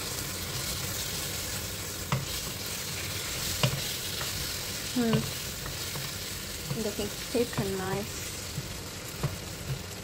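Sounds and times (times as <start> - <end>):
meat and vegetables sizzling in pan: 0.0 - 10.0
wooden spatula stirring: 0.0 - 10.0.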